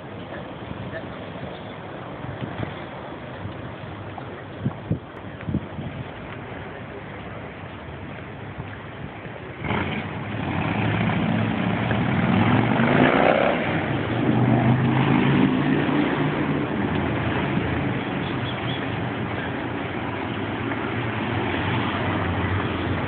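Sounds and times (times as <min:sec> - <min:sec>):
vehicles driving past: 0:00.0 - 0:23.0
engine accelerating: 0:09.6 - 0:18.1.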